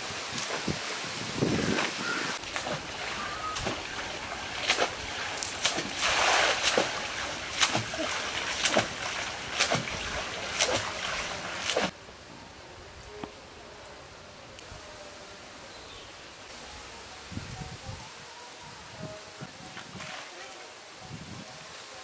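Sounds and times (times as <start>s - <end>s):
pond water splashing: 0.0s - 12.1s, 19.7s - 20.7s.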